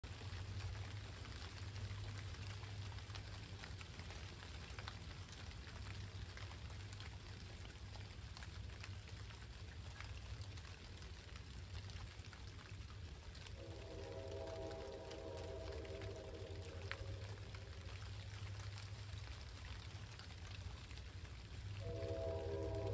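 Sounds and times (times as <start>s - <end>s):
light rain dripping: 0.0s - 22.9s
low rumble: 13.4s - 20.5s, 21.4s - 22.9s.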